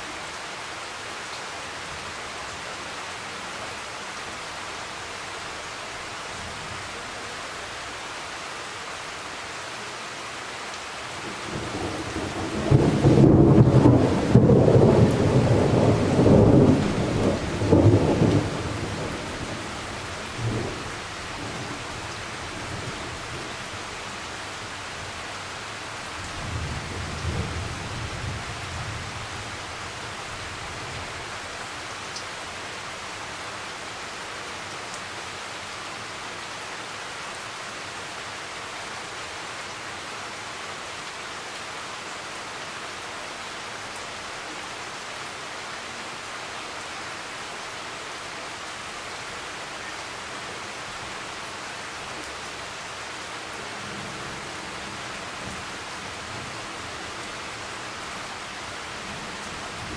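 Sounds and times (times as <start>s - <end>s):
steady rain hissing: 0.0s - 59.9s
thunder rumbling: 11.5s - 19.5s.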